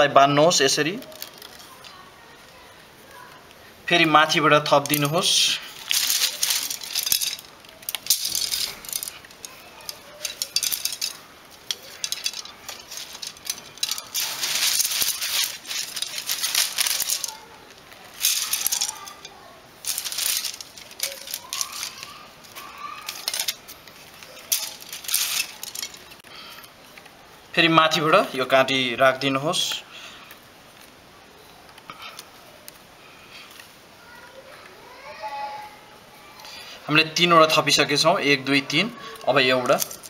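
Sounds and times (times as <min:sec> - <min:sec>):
plastic wire rasping: 0:04.8 - 0:26.2
bamboo sticks clicking: 0:05.8 - 0:26.3.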